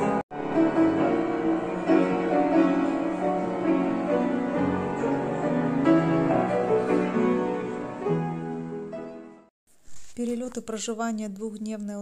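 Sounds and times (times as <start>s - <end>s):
grand piano chords: 0.0s - 9.5s.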